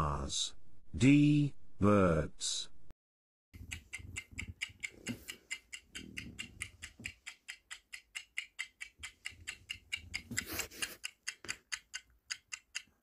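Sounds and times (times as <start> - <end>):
fast clock ticking: 3.6 - 13.0.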